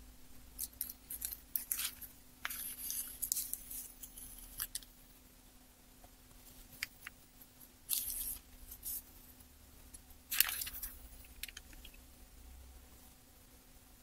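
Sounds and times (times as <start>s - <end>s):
faint steady hum: 0.0s - 14.0s
paper and foil rustling: 0.6s - 4.9s, 10.3s - 11.9s.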